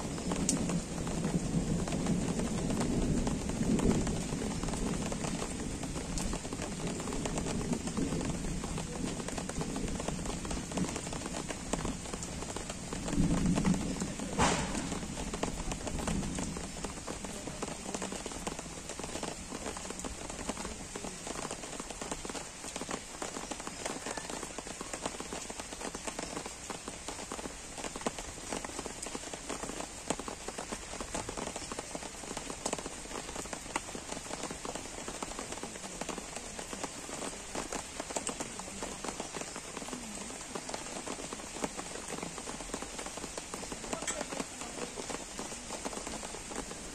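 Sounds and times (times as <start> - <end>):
gentle rain on trees and lawn: 0.0 - 46.9
sharp knock: 14.4 - 15.1.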